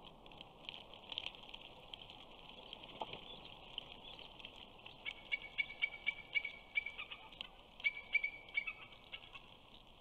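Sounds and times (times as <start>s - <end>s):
young eagle chipping calls: 5.3s - 9.2s.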